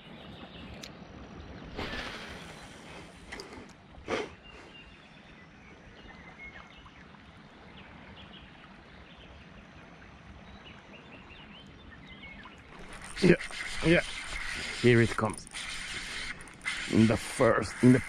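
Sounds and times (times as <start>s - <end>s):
faint bird chirps: 10.4s - 18.0s.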